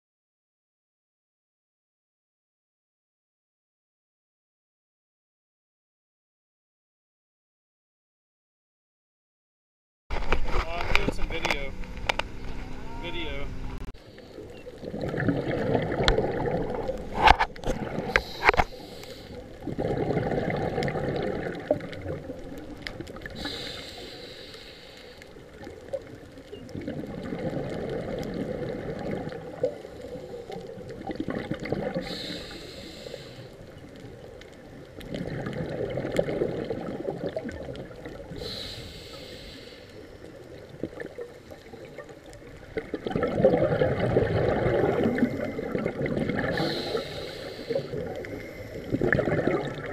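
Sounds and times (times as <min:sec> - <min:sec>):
exhaled bubbles rushing: 0:14.2 - 0:24.2, 0:25.3 - 0:38.7, 0:40.2 - 0:49.9
regulator hissing inhale: 0:18.0 - 0:19.6, 0:23.3 - 0:25.4, 0:32.0 - 0:33.7, 0:38.4 - 0:40.2, 0:46.5 - 0:49.0.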